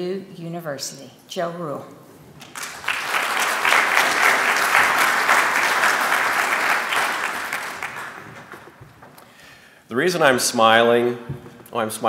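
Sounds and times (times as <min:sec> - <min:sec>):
audience applauding: 0:02.4 - 0:09.2.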